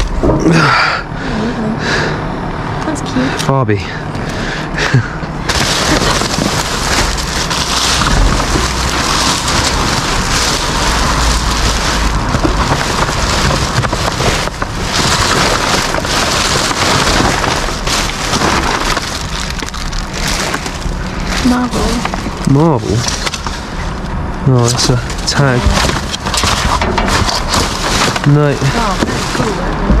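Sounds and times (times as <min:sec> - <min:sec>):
paper rustling: 0:05.4 - 0:24.0, 0:24.6 - 0:30.0
plastic sheeting crinkling: 0:05.4 - 0:24.0, 0:24.6 - 0:30.0.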